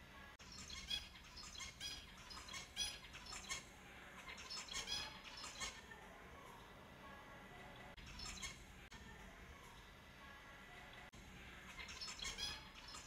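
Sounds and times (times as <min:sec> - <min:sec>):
finches chirping: 0:00.2 - 0:06.6, 0:07.5 - 0:08.9, 0:10.7 - 0:13.0.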